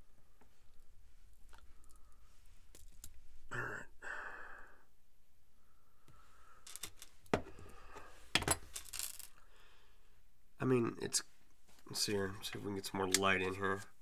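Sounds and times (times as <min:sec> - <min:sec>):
person sighing: 0:03.5 - 0:04.9.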